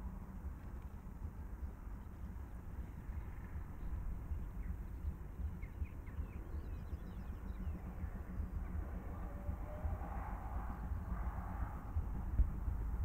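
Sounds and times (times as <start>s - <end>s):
distant steam locomotive rumble: 1.2s - 13.0s
small birds chirping: 1.6s - 8.8s.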